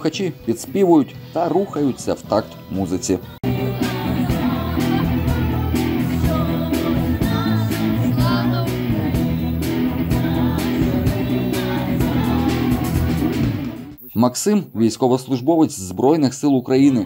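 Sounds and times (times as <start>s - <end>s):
person singing: 1.6s - 13.9s.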